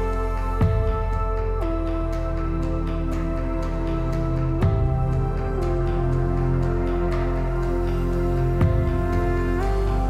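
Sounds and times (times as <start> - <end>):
soft held chord music: 0.0 - 10.0.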